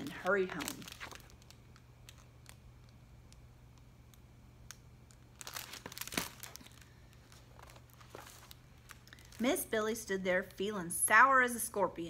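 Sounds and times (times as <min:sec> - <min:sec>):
paper pages rustling: 0:00.0 - 0:01.5, 0:05.4 - 0:09.5.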